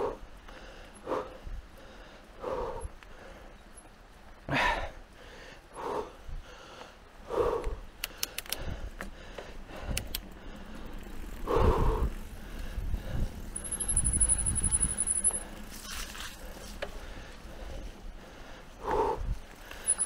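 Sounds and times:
rider breathing hard: 0.0s - 3.7s, 4.5s - 20.0s
rumble of tyres and wind: 0.0s - 20.0s
sharp clicks: 8.0s - 9.1s, 9.9s - 10.3s.

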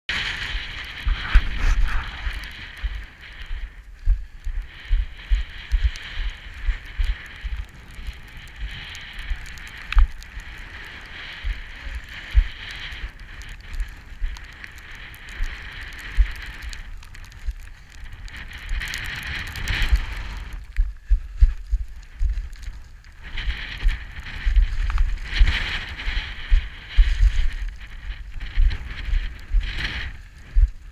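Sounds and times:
boots crunching on loose scree: 0.1s - 14.4s
steady wind hiss: 0.1s - 30.9s
wind buffeting microphone: 0.1s - 30.9s.

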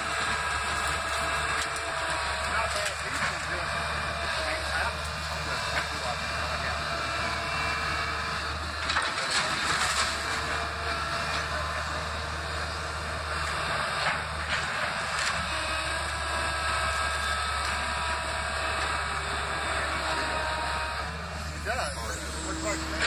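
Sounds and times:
wood and debris cracking and crashing: 0.0s - 3.7s, 8.8s - 11.6s
excavator diesel engine running: 0.0s - 23.0s.

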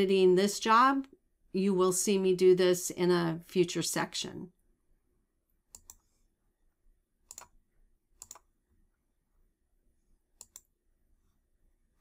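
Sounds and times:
computer mouse clicks: 5.7s - 6.2s, 7.2s - 7.6s, 8.2s - 8.6s, 10.3s - 10.7s.

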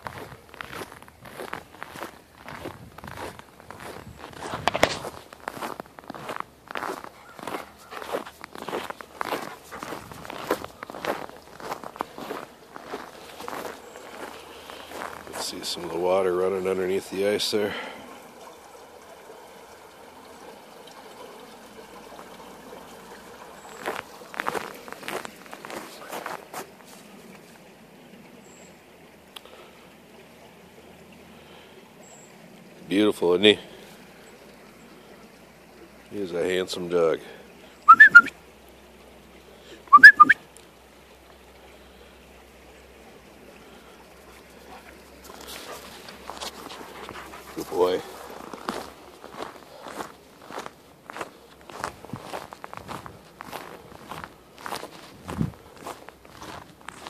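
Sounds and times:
ice crunch: 0.0s - 16.1s, 23.8s - 27.6s
creek water trickling: 0.0s - 57.0s
person whistling to a dog: 37.9s - 38.3s, 39.9s - 40.4s.

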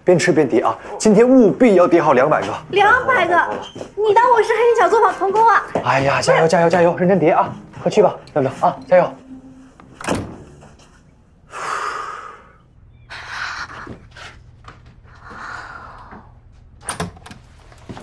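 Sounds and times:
long breathy sounds: 11.4s - 14.4s, 15.0s - 16.5s.

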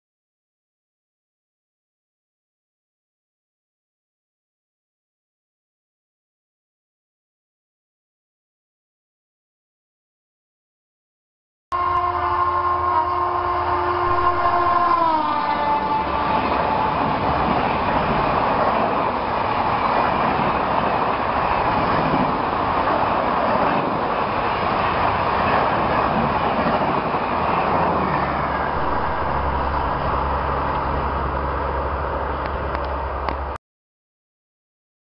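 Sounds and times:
train horn dropping in pitch: 11.7s - 17.4s, 28.6s - 31.8s
train wheels and air rushing: 14.0s - 33.6s.

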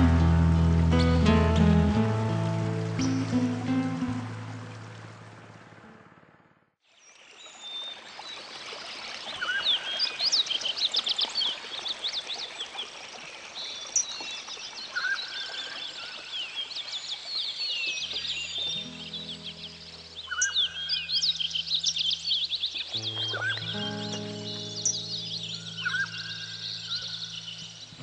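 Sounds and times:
background music: 0.0s - 5.4s, 18.7s - 20.9s, 22.9s - 26.9s
birds chirping: 13.9s - 28.0s.

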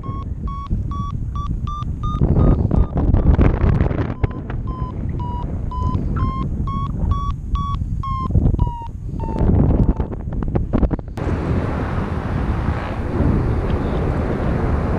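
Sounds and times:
variometer beeping: 0.0s - 10.2s
wind on microphone: 0.0s - 14.9s.

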